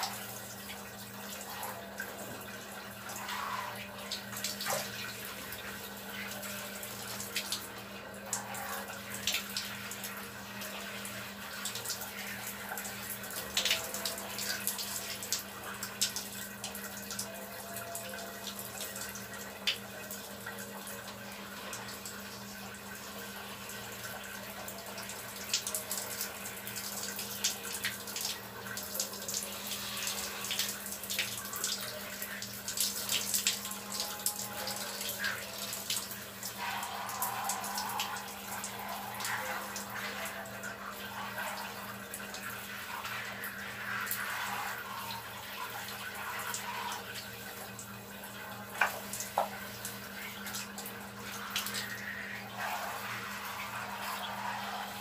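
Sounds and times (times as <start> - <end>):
shower spray on a body: 3.1 - 3.8, 25.4 - 47.3, 48.7 - 55.0.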